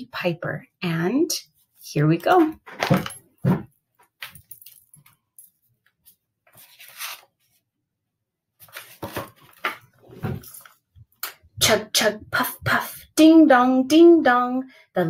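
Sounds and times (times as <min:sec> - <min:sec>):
pages rustling: 0:06.0 - 0:07.6, 0:08.6 - 0:10.8.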